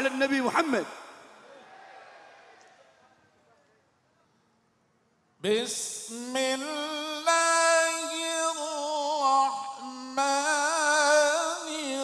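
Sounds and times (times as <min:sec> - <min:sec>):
man chanting melodically: 0:00.0 - 0:01.1, 0:05.4 - 0:12.0.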